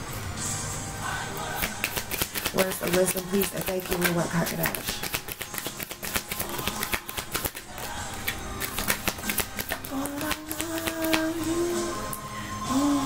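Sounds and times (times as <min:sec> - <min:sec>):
cards being shuffled: 0:01.4 - 0:11.5
soft music with held notes: 0:02.8 - 0:13.0.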